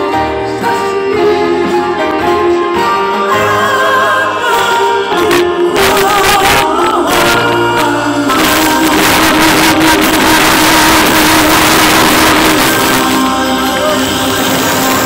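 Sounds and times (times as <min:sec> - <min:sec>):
singers with live band: 0:00.0 - 0:15.0
audience applause and cheering: 0:08.3 - 0:15.0.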